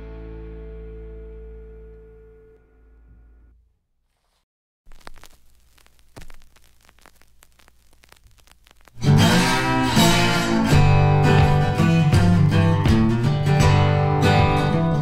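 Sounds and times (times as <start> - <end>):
strummed guitar: 0.0 - 3.0, 9.0 - 15.0
low bass line: 0.0 - 3.5.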